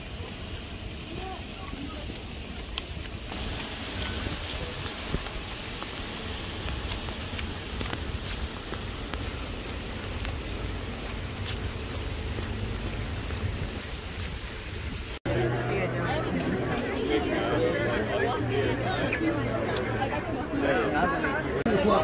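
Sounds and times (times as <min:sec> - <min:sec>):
heavy rain on pavement and grass: 0:00.0 - 0:15.5.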